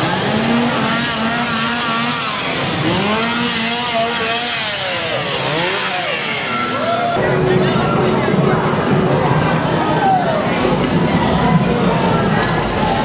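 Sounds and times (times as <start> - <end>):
chainsaw engine revving: 0.0 - 7.2.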